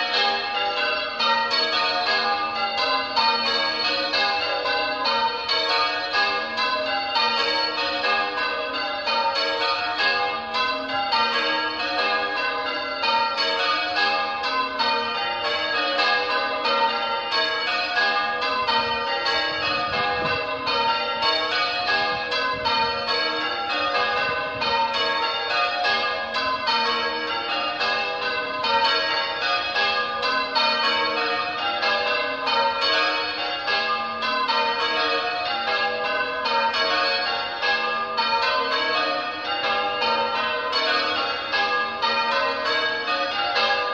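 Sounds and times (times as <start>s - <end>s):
church bells change ringing: 0.0s - 43.9s.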